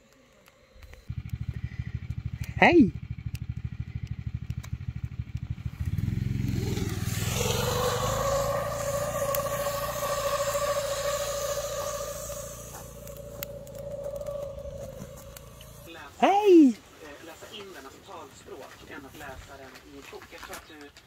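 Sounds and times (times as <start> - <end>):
snowmobile engine revving: 0.8 - 16.6.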